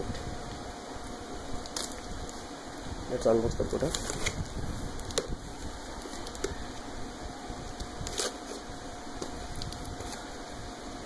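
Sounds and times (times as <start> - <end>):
steady background hum: 0.0 - 11.0
knife slitting packing tape: 8.0 - 8.6.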